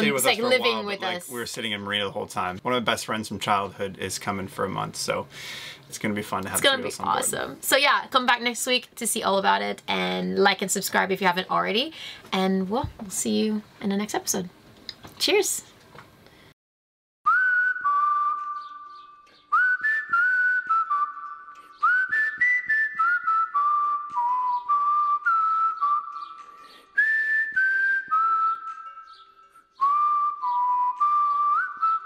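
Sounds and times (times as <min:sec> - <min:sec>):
whistled melody: 0:17.3 - 0:32.0.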